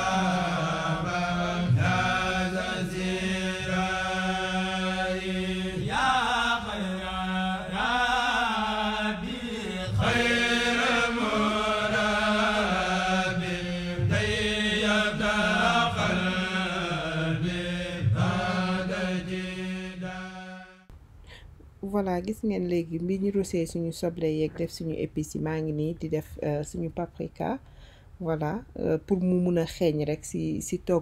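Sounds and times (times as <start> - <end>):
chanted vocal line: 0.0 - 20.9.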